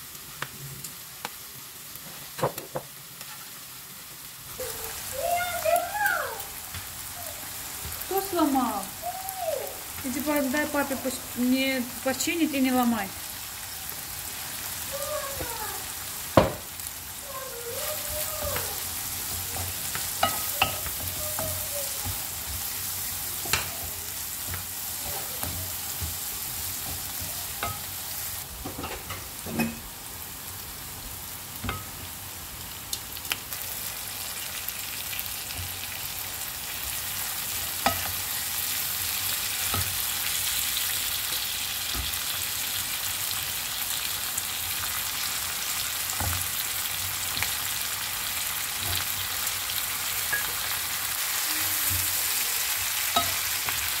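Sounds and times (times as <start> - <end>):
onions sizzling in a pan: 0.0 - 54.0
wooden spatula knocking pan: 16.3 - 16.7.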